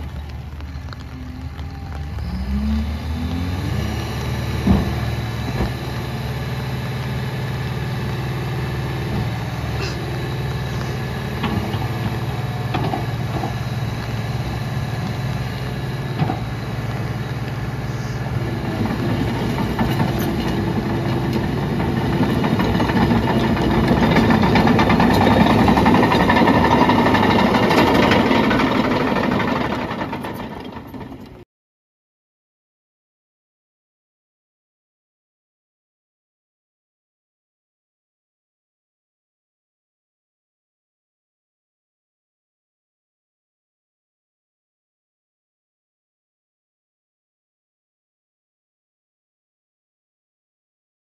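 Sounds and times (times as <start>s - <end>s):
steel tracks clanking on gravel: 0.0s - 2.6s, 18.4s - 31.4s
diesel engine running: 0.0s - 31.4s.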